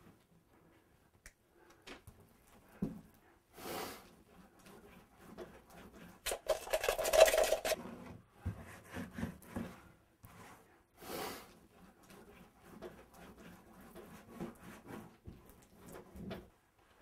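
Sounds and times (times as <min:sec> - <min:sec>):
tool scraping painted surface: 0:04.6 - 0:09.8
light scratches and taps: 0:11.8 - 0:16.5.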